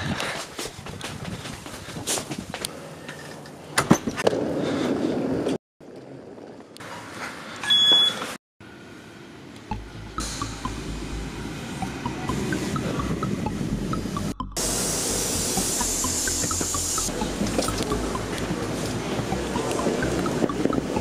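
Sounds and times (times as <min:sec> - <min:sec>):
card reader beep: 0:07.6 - 0:08.3
electric train rumbling: 0:08.8 - 0:21.0.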